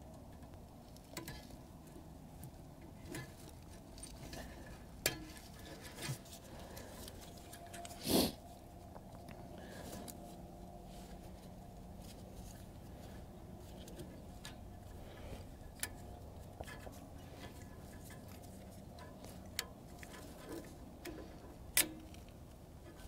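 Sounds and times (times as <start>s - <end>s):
low steady hum: 0.0s - 23.0s
small clicks and taps of parts: 15.7s - 23.0s.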